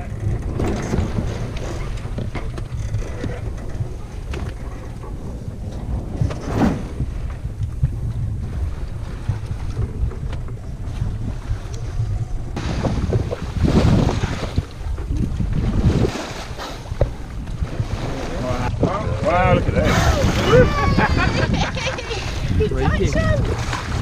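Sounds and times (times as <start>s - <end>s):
water rushing along hull: 0.0s - 24.0s
wind buffeting microphone: 0.0s - 24.0s
loud whoosh: 5.1s - 10.0s.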